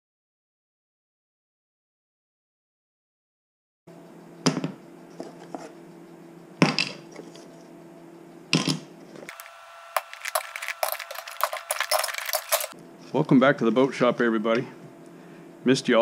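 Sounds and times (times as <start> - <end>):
wooden pieces clattering: 9.3 - 12.8.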